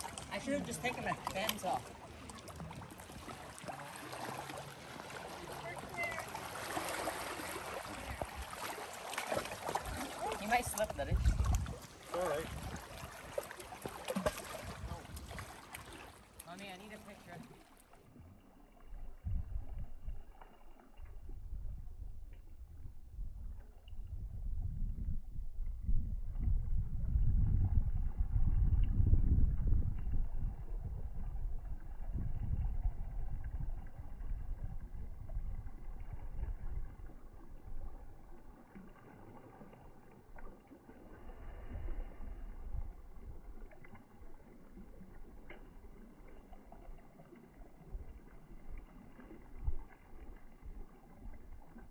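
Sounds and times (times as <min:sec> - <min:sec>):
wind buffeting microphone: 0:09.6 - 0:13.4, 0:14.2 - 0:15.6, 0:18.9 - 0:20.4, 0:21.0 - 0:38.4, 0:41.4 - 0:44.4.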